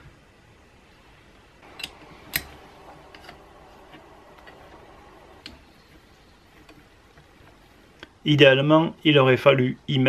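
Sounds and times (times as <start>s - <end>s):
metal screws and hex key clicking: 1.7s - 3.4s.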